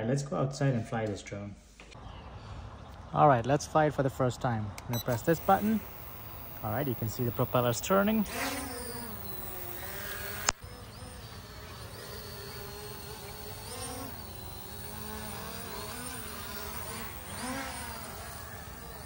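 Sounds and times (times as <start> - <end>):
sharp click: 4.8 - 5.8
quadcopter propellers buzzing: 4.9 - 19.0.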